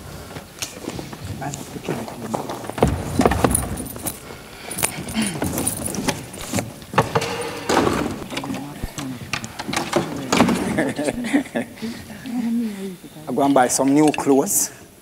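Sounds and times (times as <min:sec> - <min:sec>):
footsteps on wooden floor: 0:00.4 - 0:08.3
furniture and objects clattering: 0:00.7 - 0:11.1.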